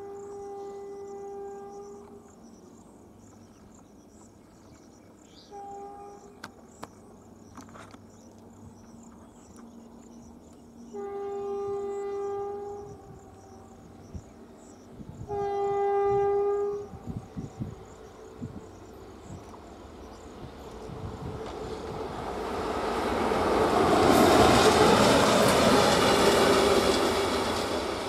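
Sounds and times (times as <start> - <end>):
locomotive horn blasts: 0.0 - 2.1, 5.5 - 6.3, 10.9 - 13.2, 15.2 - 17.2
insects chirring: 0.0 - 28.0.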